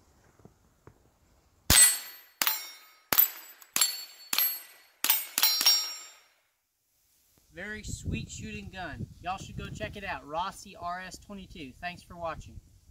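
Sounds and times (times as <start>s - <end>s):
rifle shots: 1.7s - 6.2s
metallic ping of steel targets: 1.7s - 6.4s.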